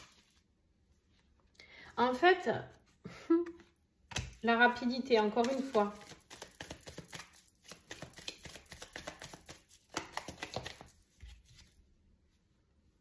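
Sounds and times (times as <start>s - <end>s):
cards clicking and flicking: 5.4s - 10.9s.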